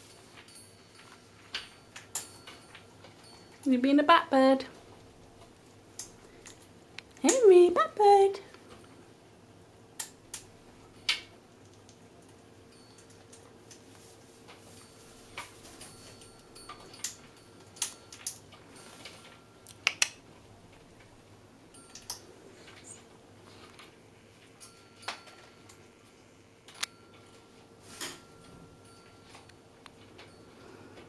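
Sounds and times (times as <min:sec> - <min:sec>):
faint steady hum: 0:00.0 - 0:31.0.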